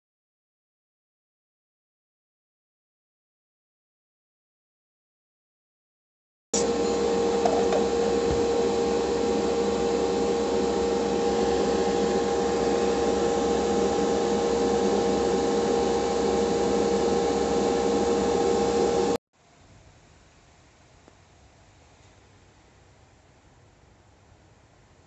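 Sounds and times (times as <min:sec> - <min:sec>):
extractor fan airy rush: 0:06.6 - 0:19.2.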